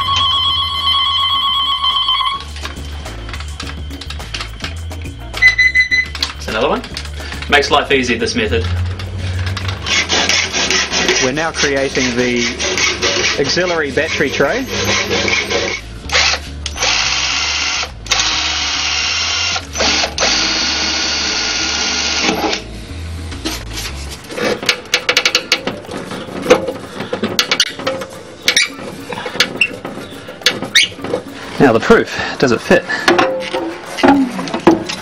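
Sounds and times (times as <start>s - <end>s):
metal parts clicking and knocking: 2.5s - 4.8s, 24.2s - 31.6s
electric drill running: 9.7s - 11.0s, 14.7s - 22.6s.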